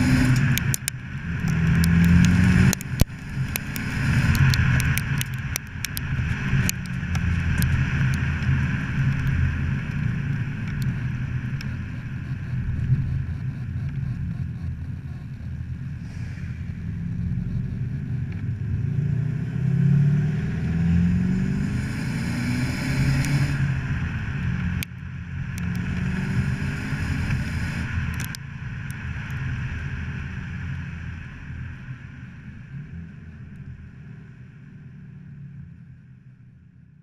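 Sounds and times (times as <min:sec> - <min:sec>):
car engine revving: 0:00.0 - 0:05.6, 0:06.3 - 0:28.4.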